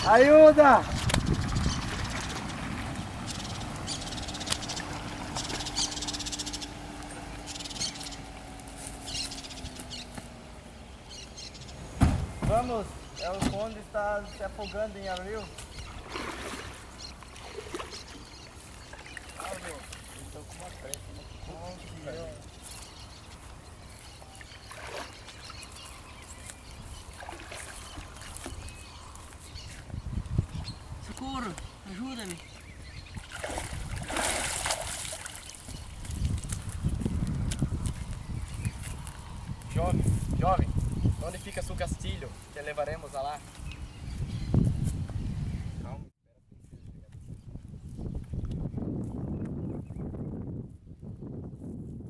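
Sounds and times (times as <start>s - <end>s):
footsteps rustling through grass: 8.4s - 10.4s, 22.4s - 24.6s, 25.2s - 30.0s, 34.8s - 41.4s.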